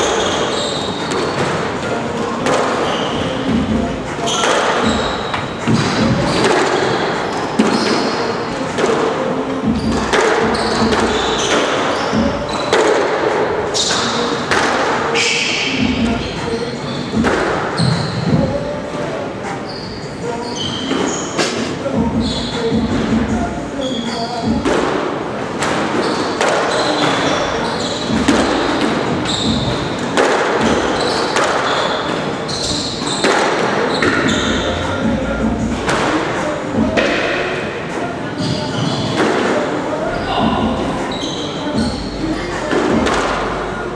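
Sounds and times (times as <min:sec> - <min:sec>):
squash ball hits with echo: 0:00.0 - 0:16.2, 0:17.1 - 0:18.6, 0:24.4 - 0:43.7
shoes squeaking on court floor: 0:00.0 - 0:24.9, 0:25.6 - 0:43.9
racket striking ball: 0:29.8 - 0:32.0.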